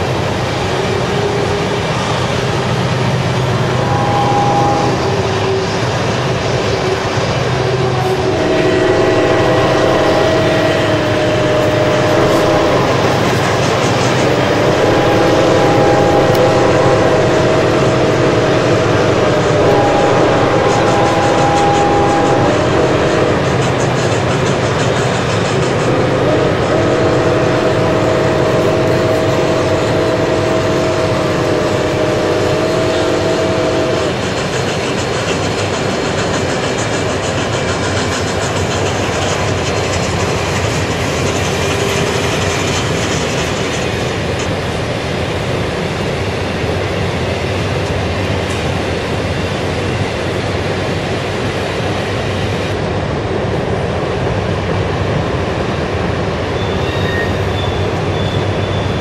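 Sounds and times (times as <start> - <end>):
model train wheels and motors: 0.0 - 59.0
held chord of steady tones: 3.5 - 5.7, 7.8 - 23.6, 25.6 - 34.3.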